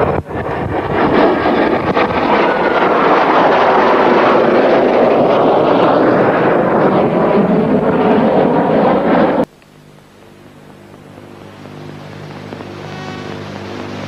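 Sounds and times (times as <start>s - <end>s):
wind on the microphone: 0.0s - 9.5s
aircraft engine rush overhead: 0.0s - 14.0s
faint steady tones: 7.3s - 14.0s.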